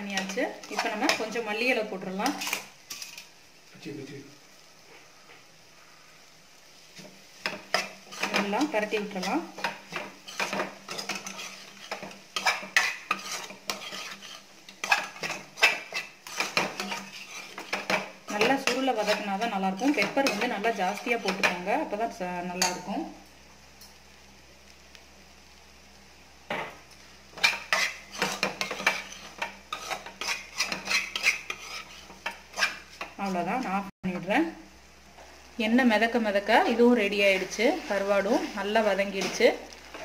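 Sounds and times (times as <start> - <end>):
spatula scraping metal pan: 0.0 - 1.4, 2.0 - 3.3, 7.4 - 21.7, 27.3 - 33.6, 37.2 - 40.0
light frying sizzle: 0.0 - 40.0.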